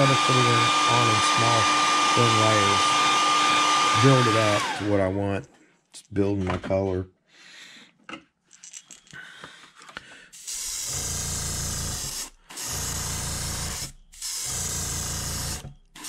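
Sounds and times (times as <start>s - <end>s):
airbrush hissing air: 10.4s - 11.4s, 12.0s - 16.0s.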